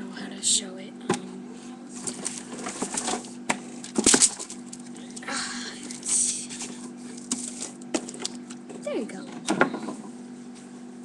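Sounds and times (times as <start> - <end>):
handling cracks and knocks: 2.0 - 10.0.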